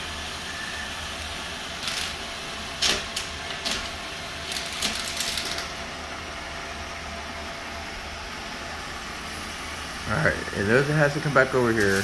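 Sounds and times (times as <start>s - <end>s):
irregular clicks and rattles: 2.8s - 5.7s.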